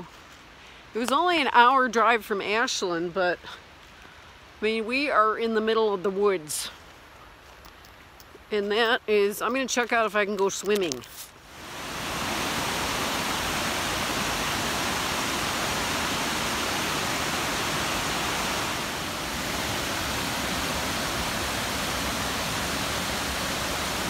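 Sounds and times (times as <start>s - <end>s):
waterfall rushing: 11.4s - 24.0s.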